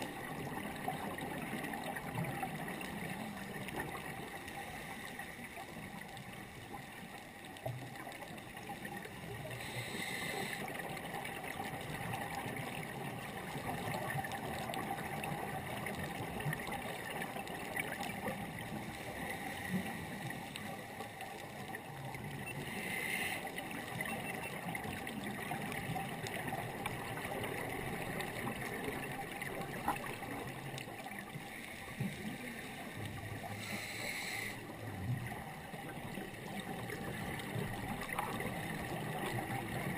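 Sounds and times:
underwater hiss and crackle: 0.0s - 39.9s
scuba regulator breaths: 4.5s - 5.9s, 9.5s - 10.9s, 18.7s - 20.9s, 22.5s - 23.6s, 31.4s - 34.8s.

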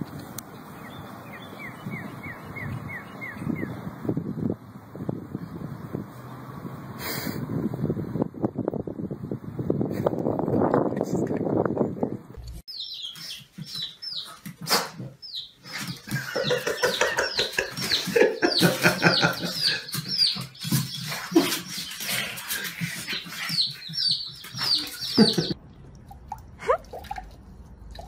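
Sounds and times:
baby chicks peeping: 12.7s - 25.6s.

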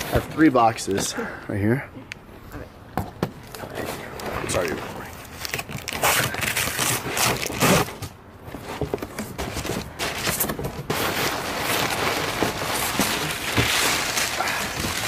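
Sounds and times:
cardboard scraping and rustling: 4.4s - 15.0s.

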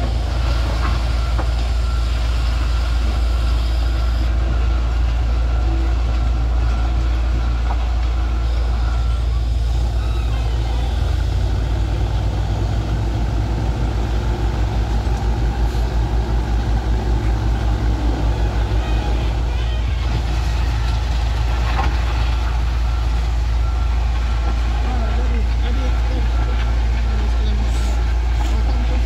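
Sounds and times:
diesel engine droning: 0.0s - 29.0s
back-up alarm beeping: 21.9s - 29.0s.

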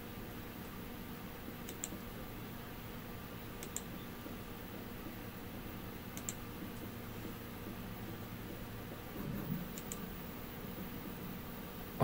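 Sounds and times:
faint room hum: 0.0s - 12.0s.

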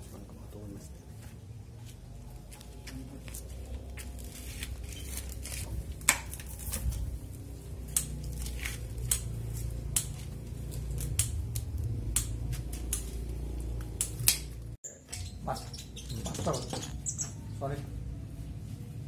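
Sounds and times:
pruning shears snipping twigs: 4.0s - 7.2s, 7.8s - 14.8s.

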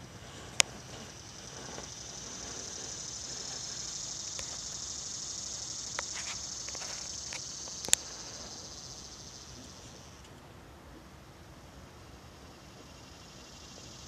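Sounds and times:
insects buzzing: 0.0s - 14.0s
sharp clicks: 5.9s - 8.1s.

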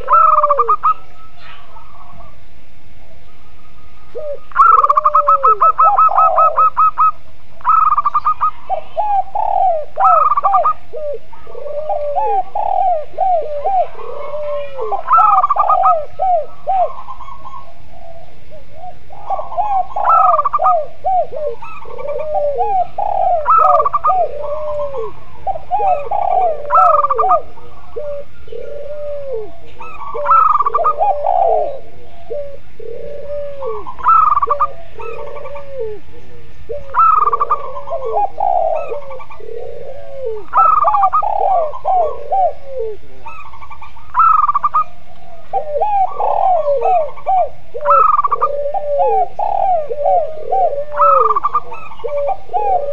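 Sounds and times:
higher dove call phrase: 0.0s - 1.0s, 4.2s - 17.4s, 19.3s - 36.1s, 45.5s - 52.9s
low doves cooing: 0.0s - 52.9s.

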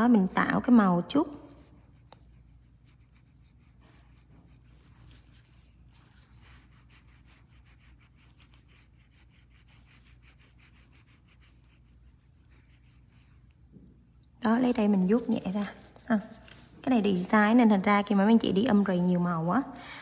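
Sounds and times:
nail brush rubbing strokes: 0.0s - 13.8s.

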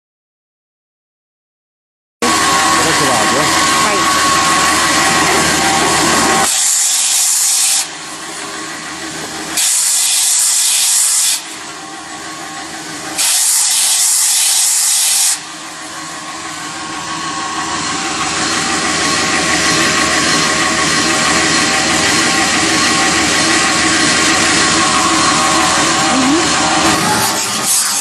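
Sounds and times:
abrasive belt grinding metal: 2.2s - 7.5s, 16.0s - 28.0s.

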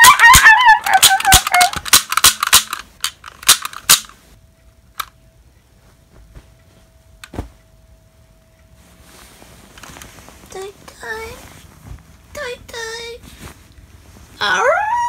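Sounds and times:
toy cap gun clicking: 0.0s - 4.2s.

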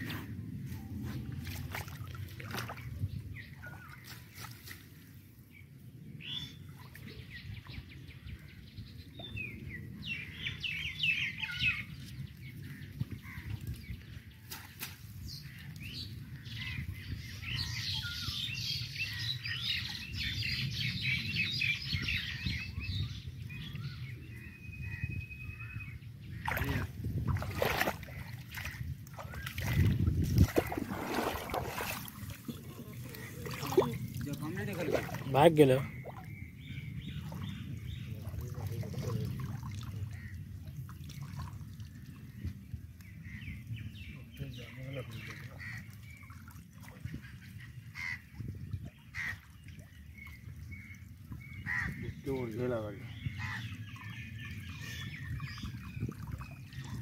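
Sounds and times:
water splashing: 1.2s - 3.0s, 26.3s - 36.3s, 37.2s - 42.2s.

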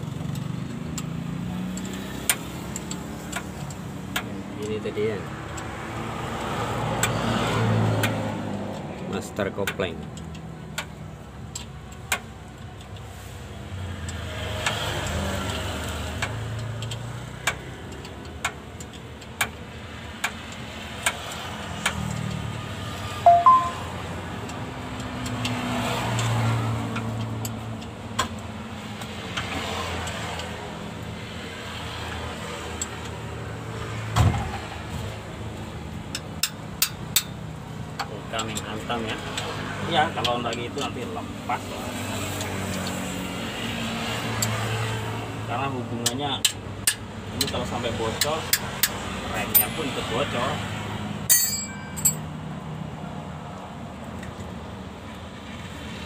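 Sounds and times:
hand tools clicking on metal: 1.7s - 5.8s, 14.0s - 22.5s, 36.0s - 39.6s, 46.0s - 49.8s, 51.3s - 52.3s.

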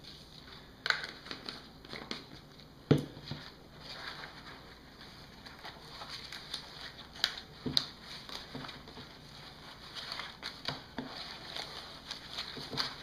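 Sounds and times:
leaf rustling and crackling: 3.9s - 13.0s.

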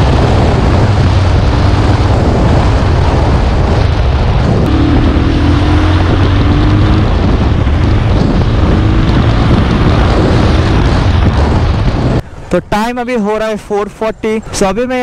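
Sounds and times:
motorcycle engine running: 0.0s - 12.2s
wind rush over microphone: 0.0s - 15.0s.

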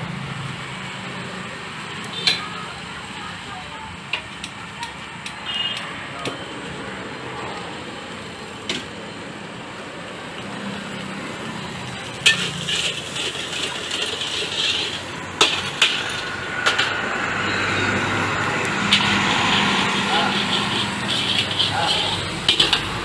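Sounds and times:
steady rushing noise: 9.1s - 23.0s.

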